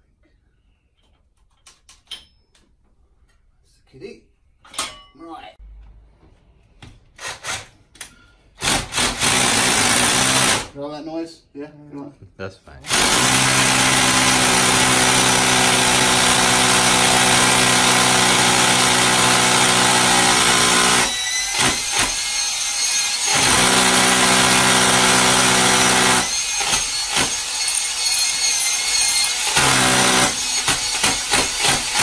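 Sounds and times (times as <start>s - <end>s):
cordless drill boring into brick: 8.6s - 10.7s, 12.9s - 32.0s.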